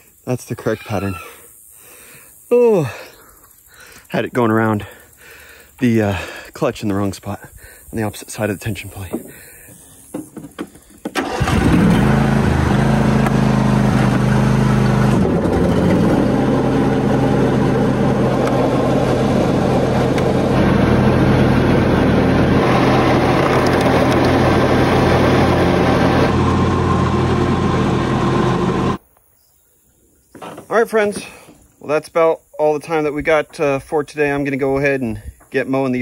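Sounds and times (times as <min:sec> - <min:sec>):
mower engine cranking and running: 0:09.0 - 0:29.0.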